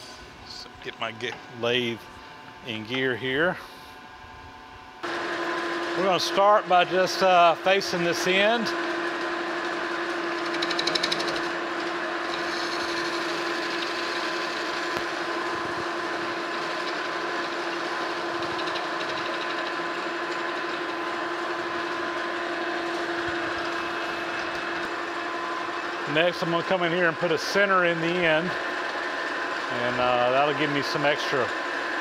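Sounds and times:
metal lathe humming: 0.0s - 32.0s
higher-pitched cutting rasp: 12.2s - 15.0s.

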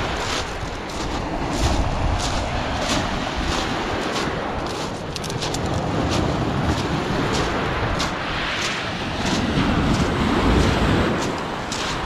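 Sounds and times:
footsteps crunching on pebbles: 0.0s - 12.0s
waves breaking on pebble beach: 0.0s - 12.0s
wind buffeting microphone: 0.0s - 12.0s.

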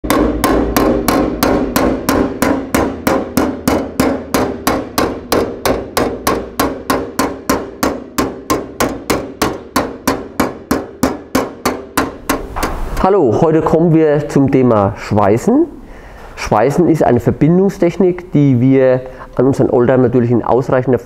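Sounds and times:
hammering on metal: 0.0s - 13.0s.

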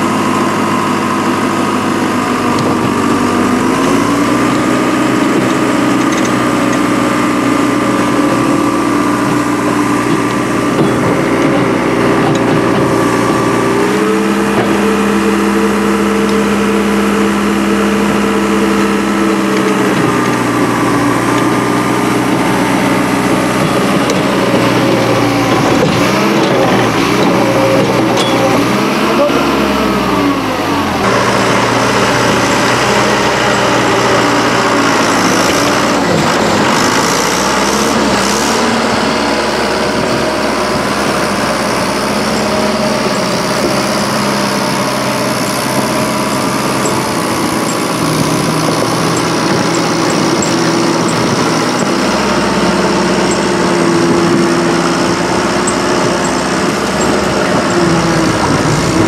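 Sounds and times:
vehicle engine running loudly: 0.0s - 59.0s.

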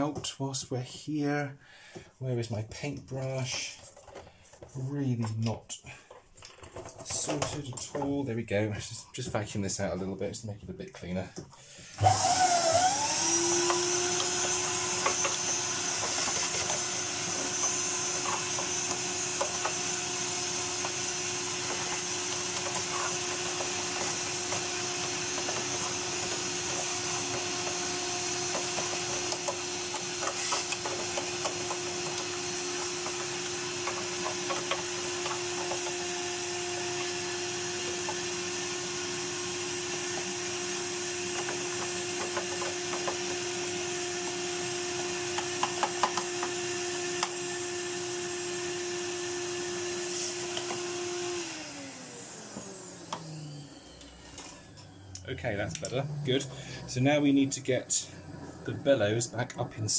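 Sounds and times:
vacuum cleaner running: 11.7s - 59.1s
nozzle and brush clicking on plastic: 13.3s - 47.4s.

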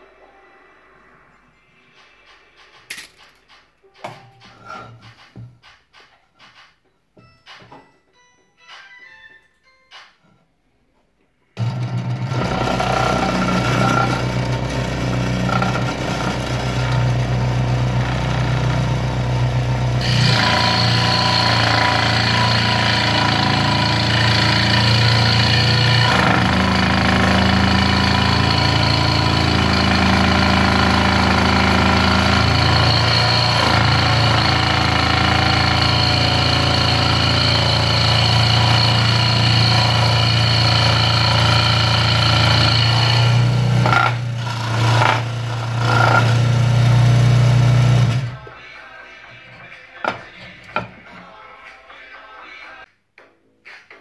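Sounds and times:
saw blade buzzing through wood: 11.6s - 48.4s.

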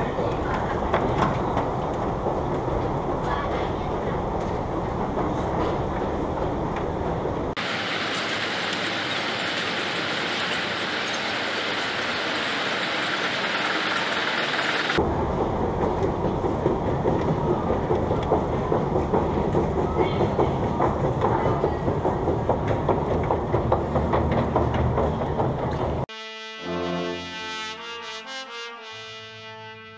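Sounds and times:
escalator steps clattering: 15.9s - 26.0s.

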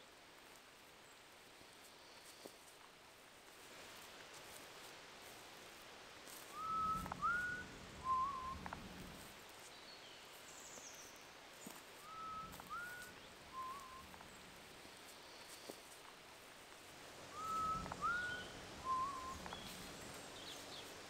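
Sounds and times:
person whistling: 6.6s - 8.6s, 12.1s - 14.0s, 17.4s - 19.4s.

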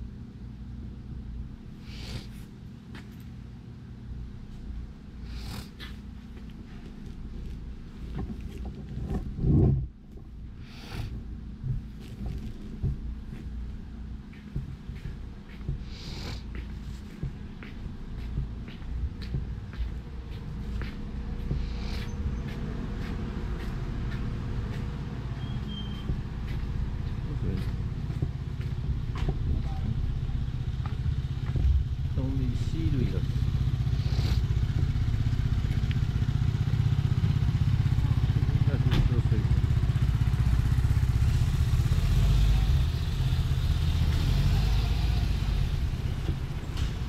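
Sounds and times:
street traffic rumble: 0.0s - 47.0s
truck engine idling: 16.8s - 47.0s
thin high squeak: 25.4s - 26.1s.

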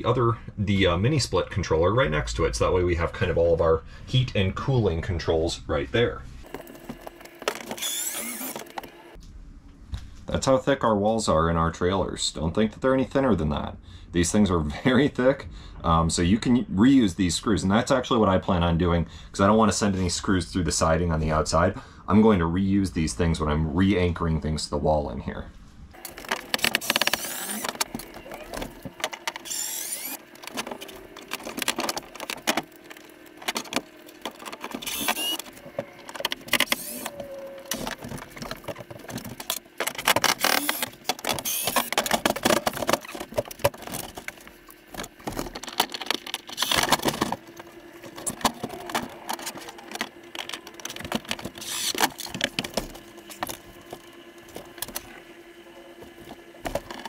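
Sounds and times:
cordless drill whirring: 6.5s - 9.2s, 26.0s - 31.3s, 34.4s - 38.0s, 40.3s - 42.0s, 51.5s - 52.2s
tool and screws rattling: 26.0s - 37.0s, 37.7s - 54.0s.

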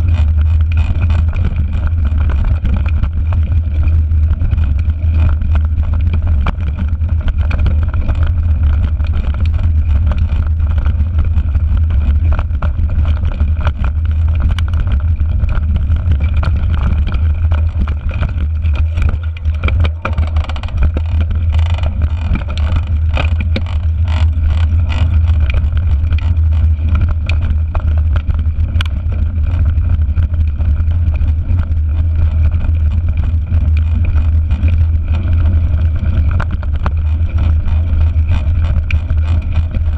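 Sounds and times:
bike and stones rattling: 0.0s - 39.9s
wind buffeting a camera: 0.0s - 39.9s.

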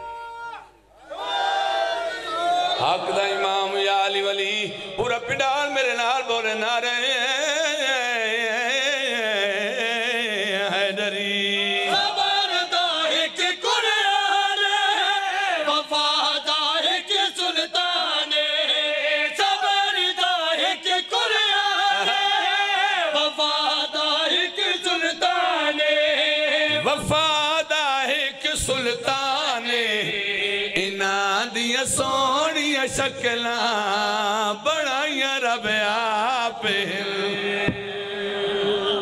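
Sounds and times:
men chanting over microphones: 2.2s - 39.0s.

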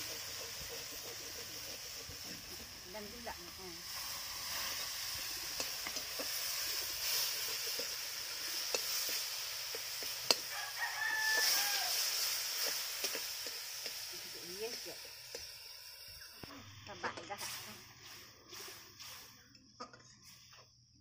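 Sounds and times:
metal spatula scraping wok: 0.0s - 20.6s
steady high hiss: 0.0s - 21.0s
rooster crowing: 10.4s - 12.2s.

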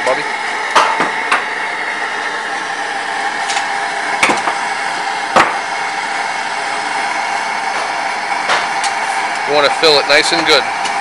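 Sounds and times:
gas torch flame hissing: 0.0s - 11.0s.

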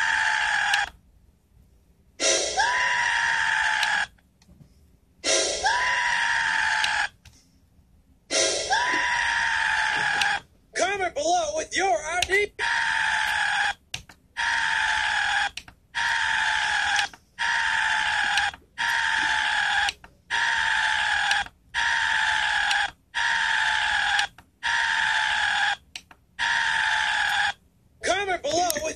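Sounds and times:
man screaming through speakers: 0.0s - 0.9s, 2.6s - 4.1s, 5.6s - 7.2s, 8.7s - 11.0s, 12.0s - 13.8s, 14.4s - 24.0s.

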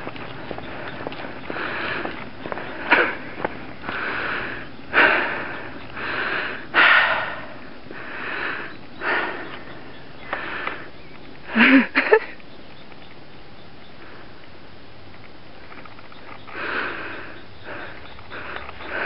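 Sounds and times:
person breathing hard: 0.6s - 11.9s, 16.5s - 19.0s.

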